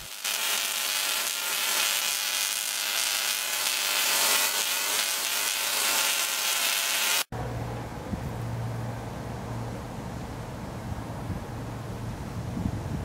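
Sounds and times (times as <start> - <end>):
electric spark sizzling buzz: 0.0 - 7.3.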